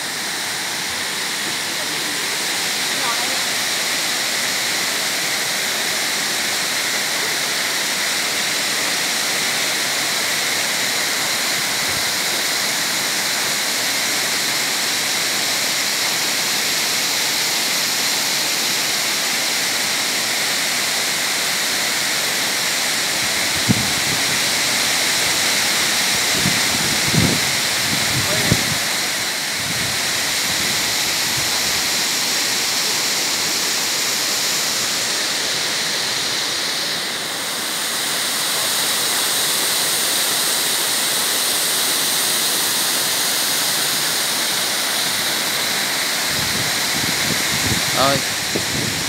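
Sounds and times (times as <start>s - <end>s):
waterfall rushing: 0.0s - 49.0s.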